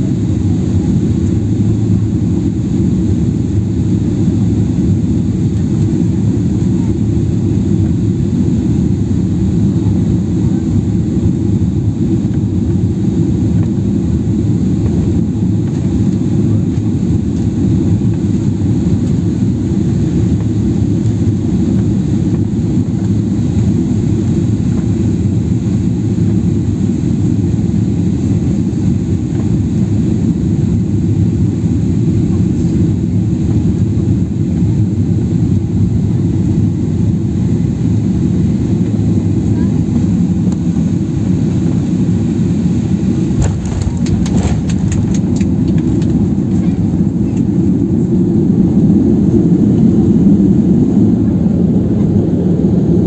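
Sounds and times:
airliner cabin engine rumble: 0.0 - 53.0.

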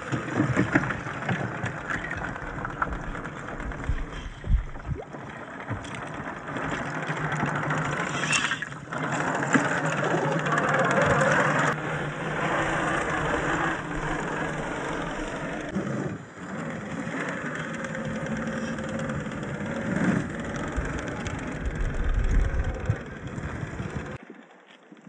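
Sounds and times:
electric motor and gears whining: 5.6 - 24.2.

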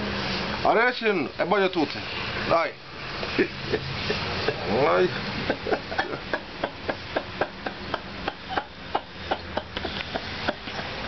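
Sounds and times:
man laughing in rapid bursts: 3.4 - 11.0.

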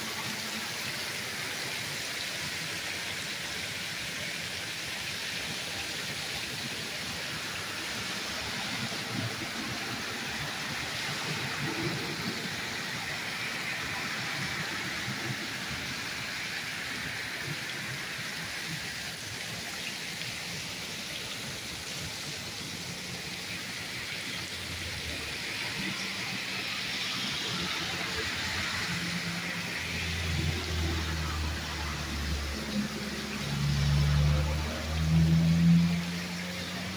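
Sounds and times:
heavy rain pouring: 0.0 - 36.9.

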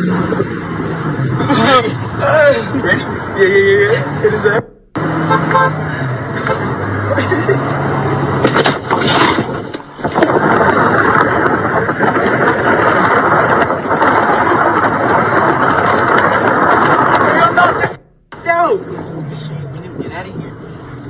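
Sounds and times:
car driving roar: 0.0 - 21.0
car striking bicycle: 4.6 - 5.6, 8.4 - 18.4.

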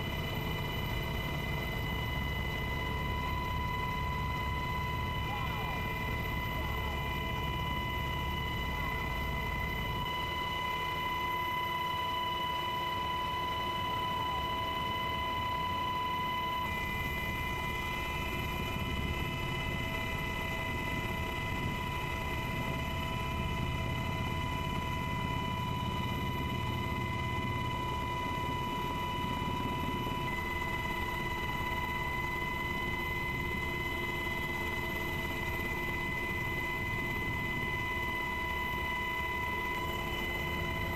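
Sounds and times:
aircraft engine drone in cabin: 0.0 - 40.9.

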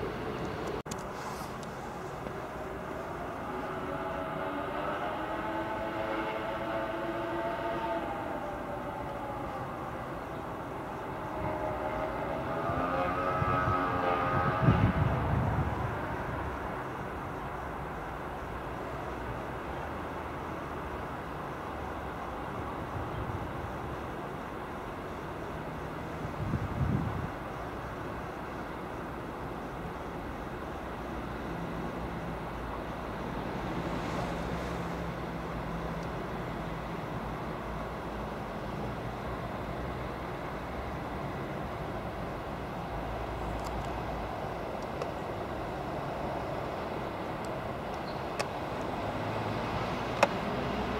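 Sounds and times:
train whining tone: 0.0 - 17.7
electric train running slowly: 0.0 - 50.9.

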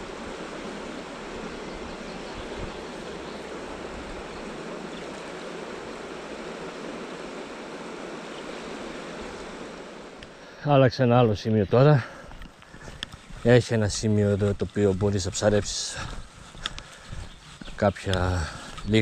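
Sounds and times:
river water rushing: 0.0 - 10.6.

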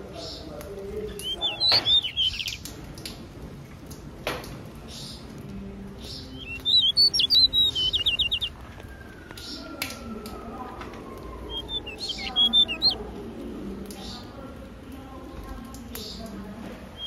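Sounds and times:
finches chirping: 1.1 - 2.7, 6.0 - 8.5, 11.5 - 13.0
sharp clicks: 6.4 - 8.5.

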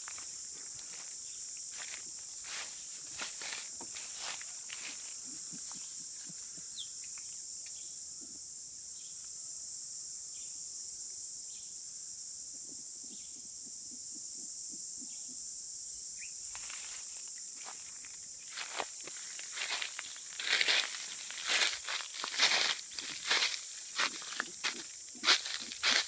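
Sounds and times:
high-pitched insect drone: 0.0 - 26.0
bird chirps: 16.2 - 16.4.

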